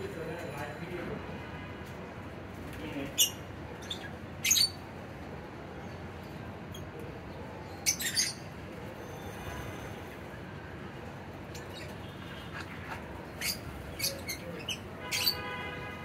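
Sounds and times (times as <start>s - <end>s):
low background noise: 0.0s - 16.0s
lovebirds high-pitched calls: 3.1s - 4.9s, 7.6s - 9.8s, 11.5s - 15.6s.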